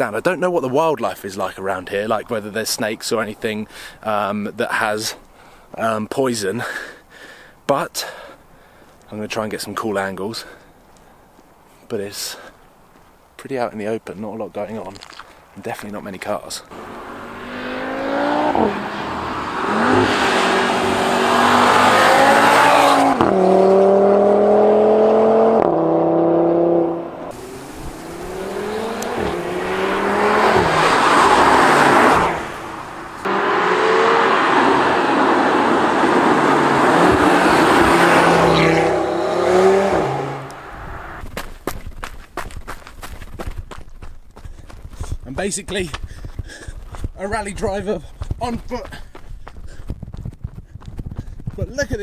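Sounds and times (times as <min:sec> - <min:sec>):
footsteps crunching on gravel: 0:14.7 - 0:15.4, 0:41.2 - 0:52.0
car engine accelerating: 0:16.7 - 0:41.2.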